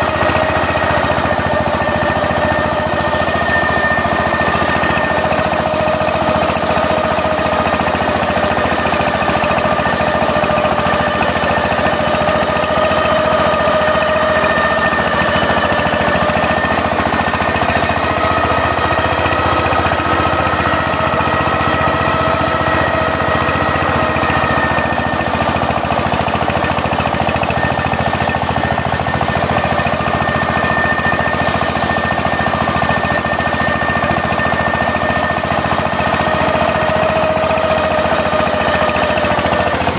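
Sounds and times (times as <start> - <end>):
diesel engine knocking: 0.0 - 39.9
high whining tones: 0.0 - 39.9.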